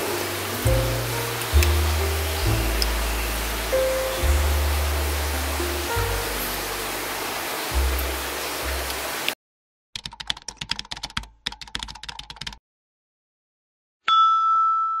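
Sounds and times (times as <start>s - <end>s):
steady hiss: 0.0s - 9.4s
keyboard typing clicks: 10.0s - 12.6s
bright ringing ding: 14.0s - 15.0s.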